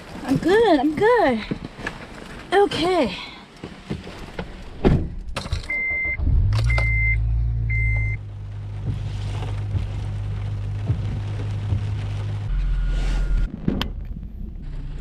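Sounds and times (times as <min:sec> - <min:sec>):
thumps: 0:03.8 - 0:12.5
car engine starting and idling: 0:04.6 - 0:15.0.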